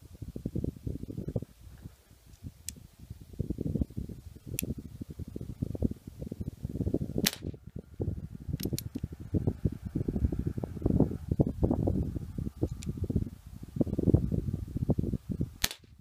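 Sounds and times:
wind buffeting microphone: 0.0s - 16.0s
pistol shot: 7.2s - 7.6s, 15.6s - 15.9s.

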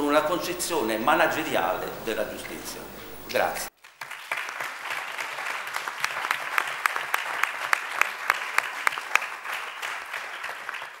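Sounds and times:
audience applauding: 3.7s - 11.0s.

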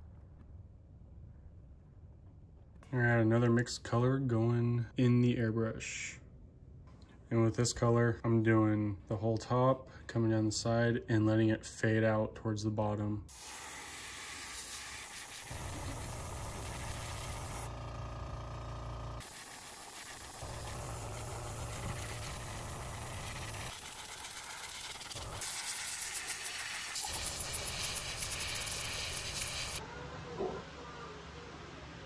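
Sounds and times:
airbrush hissing: 13.3s - 17.7s, 19.2s - 29.8s.

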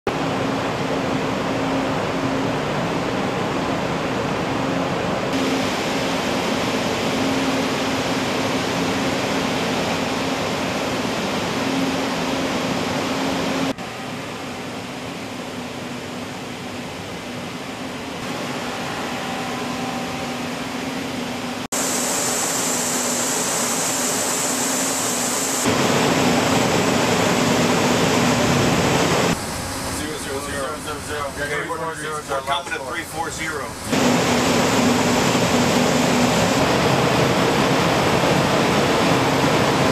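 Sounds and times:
ship machinery hum: 0.1s - 39.9s.

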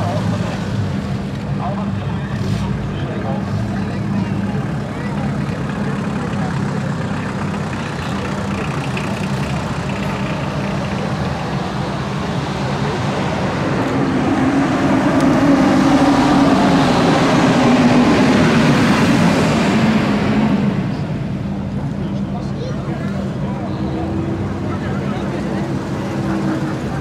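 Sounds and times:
cars driving slowly past: 0.0s - 27.0s.

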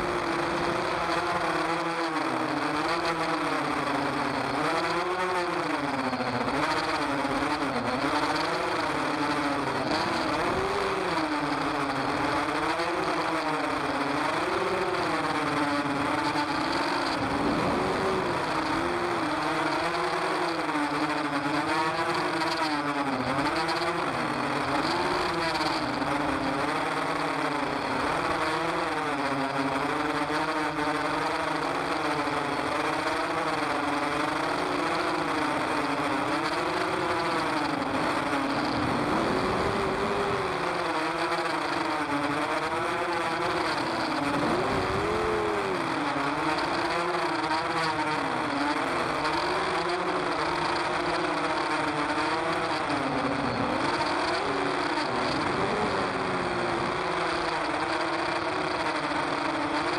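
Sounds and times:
drone motors whining: 0.0s - 58.8s.

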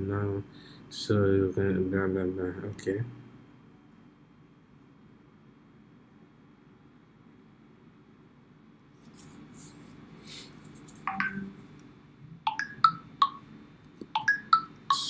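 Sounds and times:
phone notification beeps: 11.1s - 11.6s, 12.5s - 13.4s, 14.2s - 15.0s.

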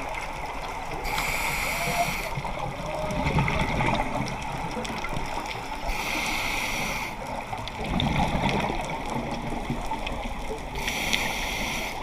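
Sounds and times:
hissing inhale through regulator: 1.0s - 2.5s, 5.8s - 7.4s, 10.7s - 12.0s
bubbling exhale underwater: 7.8s - 9.5s.

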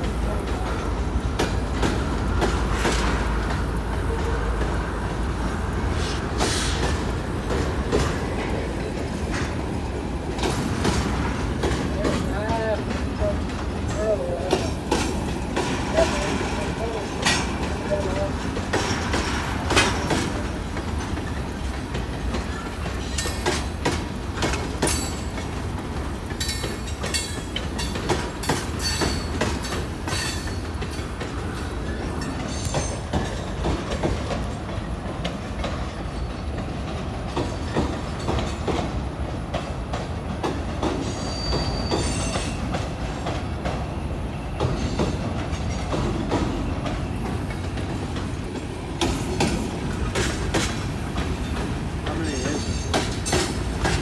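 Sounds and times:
freight train wheels rumbling: 0.0s - 54.0s
wheels clacking on rail joints: 0.0s - 54.0s
high wheel squeal: 41.0s - 42.7s.

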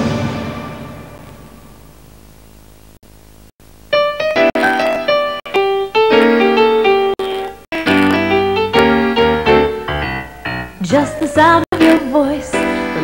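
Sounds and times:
music: 0.0s - 1.8s, 3.9s - 13.0s
piano music: 3.9s - 13.0s.

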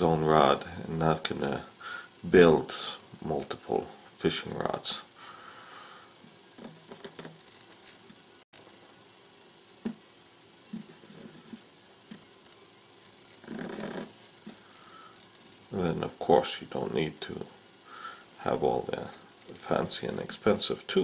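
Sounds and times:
soft rustles of thread winding: 6.5s - 8.4s, 10.7s - 15.8s, 18.0s - 20.8s.

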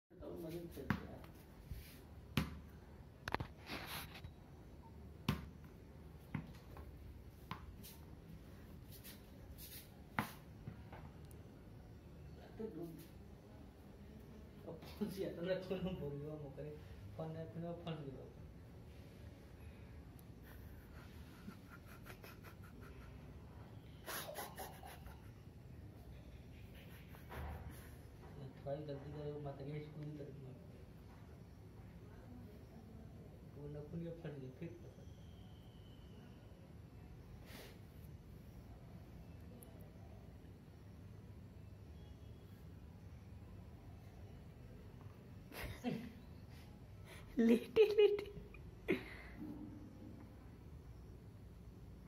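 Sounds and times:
ball bouncing on concrete: 0.7s - 1.4s, 2.3s - 2.8s, 5.2s - 7.9s, 10.1s - 11.2s.

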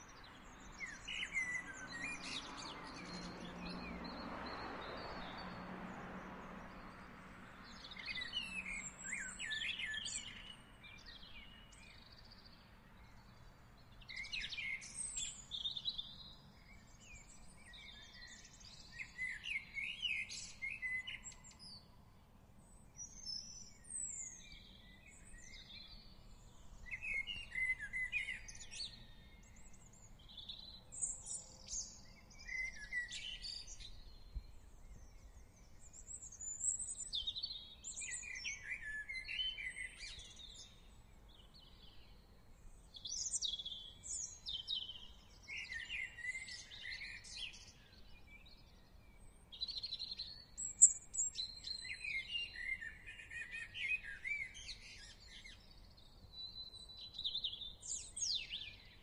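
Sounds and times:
songbirds chirping: 0.0s - 59.0s.

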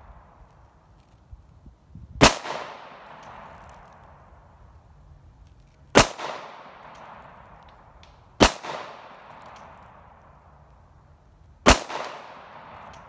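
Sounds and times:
pistol shots with echo: 2.2s - 3.6s, 6.0s - 7.4s, 8.4s - 9.6s, 11.7s - 13.0s.

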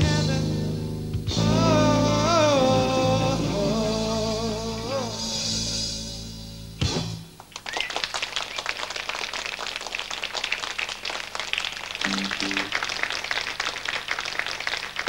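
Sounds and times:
audience applauding: 7.4s - 15.0s
low instrument notes: 12.0s - 12.8s.

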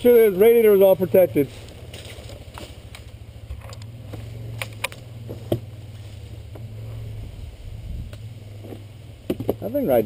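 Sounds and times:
atv engine idling: 0.0s - 10.0s
sharp clicks and knocks: 2.3s - 5.7s, 8.1s - 9.7s.

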